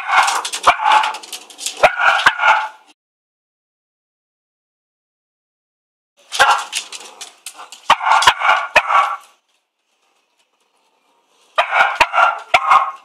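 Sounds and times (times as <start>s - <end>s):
dog barking sharply: 1.8s - 2.8s, 6.4s - 6.8s, 7.9s - 9.2s, 11.6s - 13.0s.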